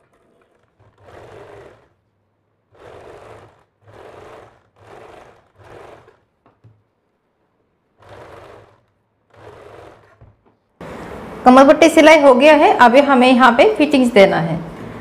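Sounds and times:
sewing machine stitching: 0:00.0 - 0:07.1, 0:07.8 - 0:10.7.

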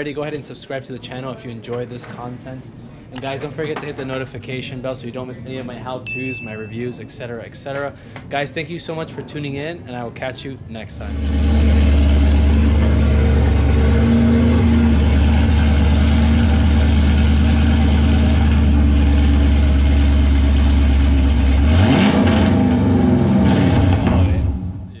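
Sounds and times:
car engine idling and revving: 0:11.0 - 0:24.9.

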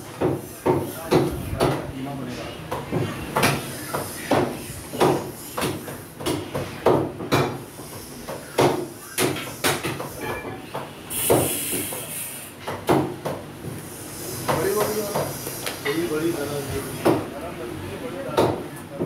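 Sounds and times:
meat chopping on wooden block: 0:02.7 - 0:07.6
burst of hiss: 0:11.0 - 0:12.6, 0:13.8 - 0:16.9.

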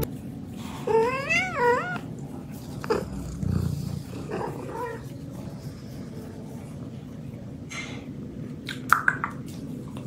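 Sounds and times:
cat meowing: 0:00.9 - 0:02.1.

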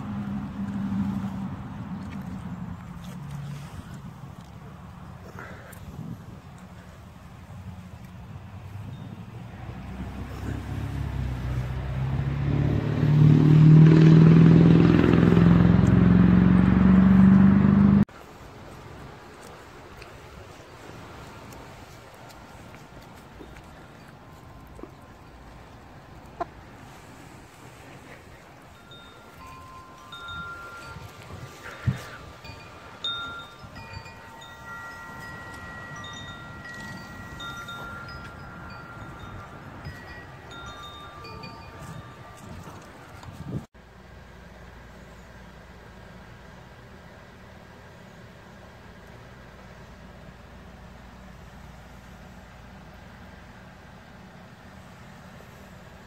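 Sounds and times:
wind rumble on microphone: 0:00.0 - 0:13.2, 0:28.2 - 0:43.7
engine running: 0:00.0 - 0:56.0
wind chimes ringing: 0:08.8 - 0:09.4, 0:28.6 - 0:43.3.

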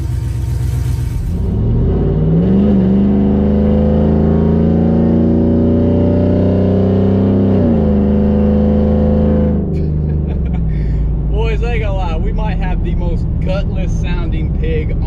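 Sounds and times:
loud truck engine accelerating: 0:00.0 - 0:15.0.

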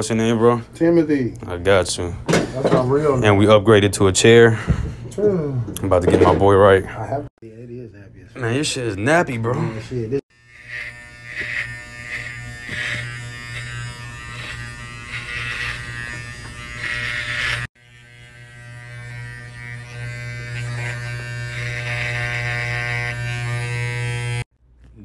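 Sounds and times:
electric hair clippers buzzing: 0:10.3 - 0:24.5.

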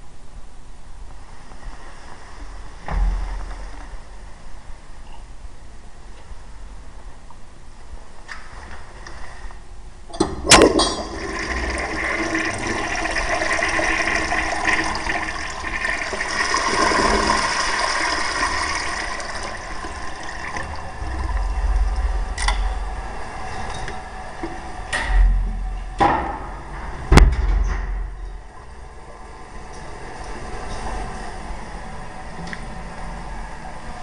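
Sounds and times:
toilet flush click: 0:10.1 - 0:21.6
water rushing through toilet bowl: 0:10.2 - 0:23.3.

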